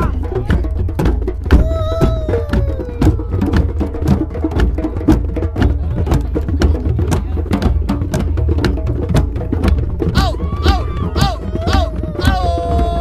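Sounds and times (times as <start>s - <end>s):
hand drums playing: 0.0s - 13.0s.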